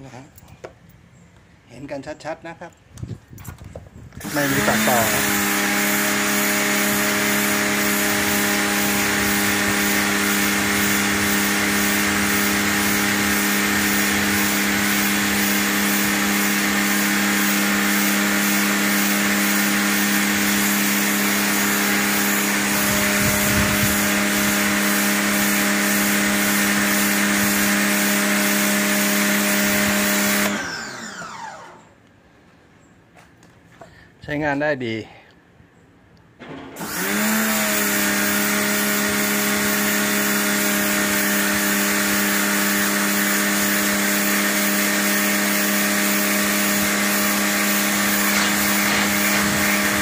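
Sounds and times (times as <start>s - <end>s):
water jet hissing on concrete: 4.2s - 30.5s, 36.8s - 50.0s
pressure washer motor humming: 4.2s - 31.9s, 36.4s - 50.0s.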